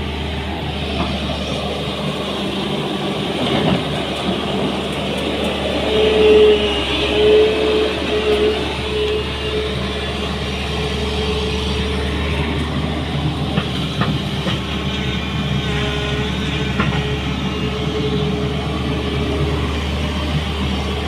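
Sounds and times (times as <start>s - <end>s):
excavator diesel engine running: 0.0s - 21.0s.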